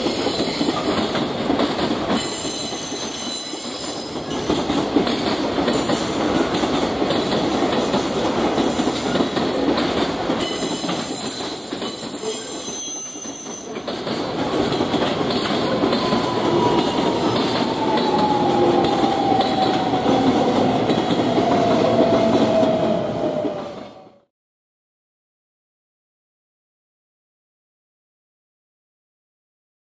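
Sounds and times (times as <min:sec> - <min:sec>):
train wheels rumbling on rails: 0:00.0 - 0:24.3.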